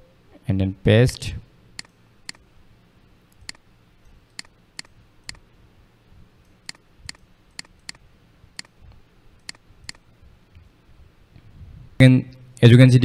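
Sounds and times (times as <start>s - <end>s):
computer mouse clicks: 3.4s - 3.6s, 4.3s - 5.4s, 6.7s - 8.0s, 9.4s - 10.0s.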